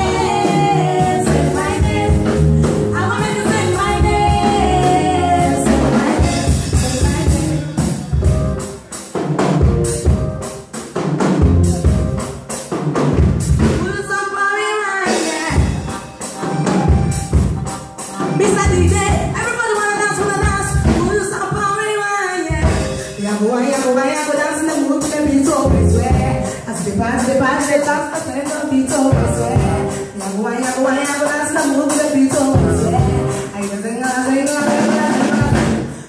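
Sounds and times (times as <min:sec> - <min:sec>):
people singing: 0:00.0 - 0:08.0
live band playing: 0:00.0 - 0:36.0.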